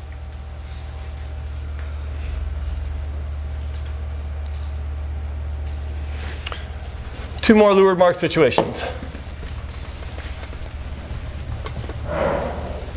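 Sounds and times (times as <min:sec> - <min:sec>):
faint higher hum: 0:00.0 - 0:12.9
low rumble: 0:12.0 - 0:12.9.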